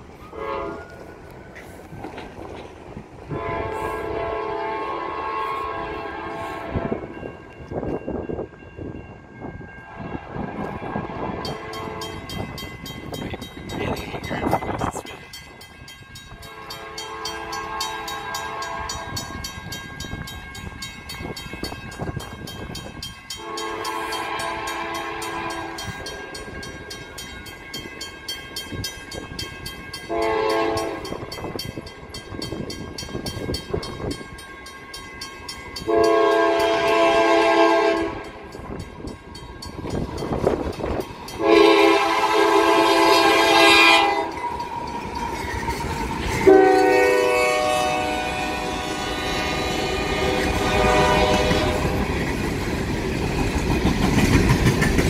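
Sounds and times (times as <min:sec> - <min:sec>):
train rumble: 0:00.0 - 0:55.0
locomotive air horn blasts: 0:00.3 - 0:01.0, 0:03.3 - 0:07.2, 0:09.9 - 0:12.2, 0:16.4 - 0:19.2, 0:23.4 - 0:25.9, 0:30.1 - 0:31.1, 0:35.9 - 0:38.2, 0:41.4 - 0:44.3, 0:46.4 - 0:52.0.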